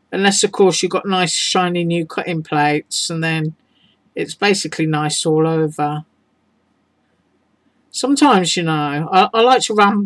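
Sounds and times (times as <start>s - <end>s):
person speaking: 0.0s - 6.1s, 7.9s - 10.0s.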